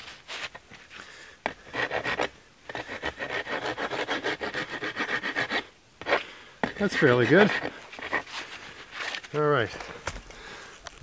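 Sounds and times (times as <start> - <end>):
file rasping on wood: 1.5 - 8.3.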